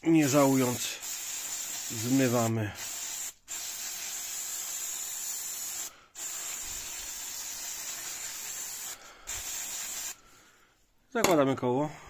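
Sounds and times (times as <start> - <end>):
aerosol spray hissing: 0.2 - 10.2.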